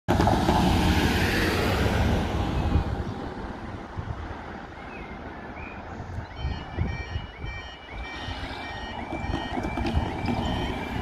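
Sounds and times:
car driving off: 0:00.1 - 0:03.7, 0:08.4 - 0:11.0.

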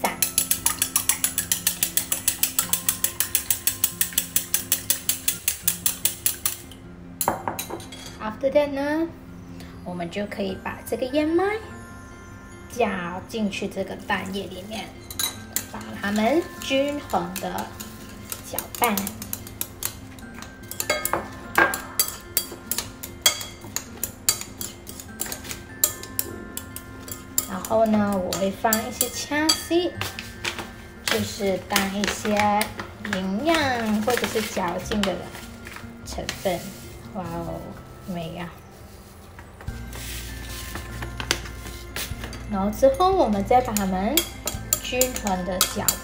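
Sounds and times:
chopsticks beating eggs in a bowl: 0:00.0 - 0:06.7, 0:14.6 - 0:38.2, 0:43.3 - 0:46.0.

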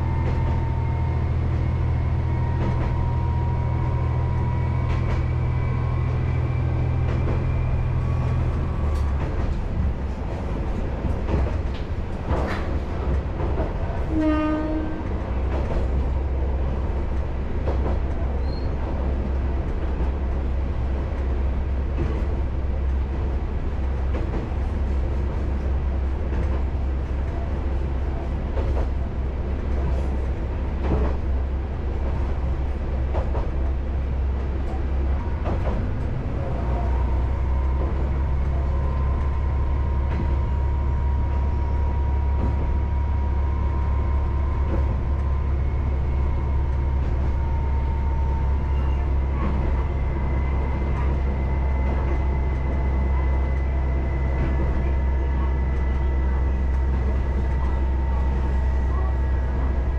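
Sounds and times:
rail clicks: 0:00.0 - 0:59.9
train horn blast: 0:14.1 - 0:15.1.

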